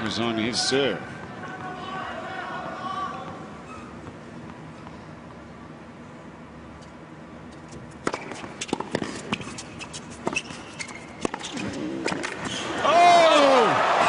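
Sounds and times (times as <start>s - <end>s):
shoe squeaks: 3.6s - 4.2s, 8.1s - 12.8s
racket striking tennis ball: 8.0s - 10.6s.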